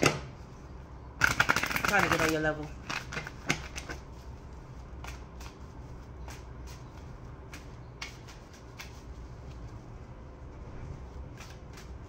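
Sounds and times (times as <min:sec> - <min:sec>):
cards being shuffled: 0:04.8 - 0:09.8, 0:11.1 - 0:12.0.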